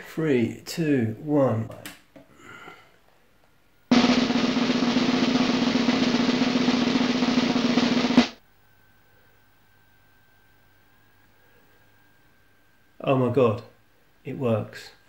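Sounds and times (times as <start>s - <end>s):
snare drum roll: 3.9s - 8.4s.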